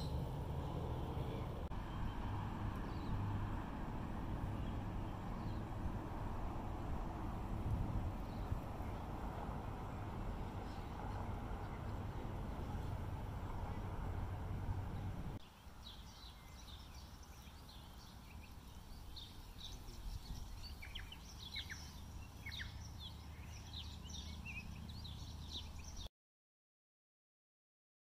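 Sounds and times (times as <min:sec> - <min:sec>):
wind rumble: 0:00.0 - 0:26.0
small birds chirping: 0:08.2 - 0:09.1, 0:10.2 - 0:26.1.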